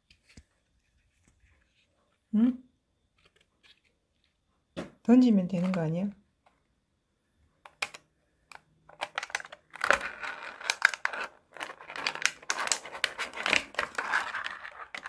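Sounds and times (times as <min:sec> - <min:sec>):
plastic packaging crinkling: 0:09.0 - 0:15.0.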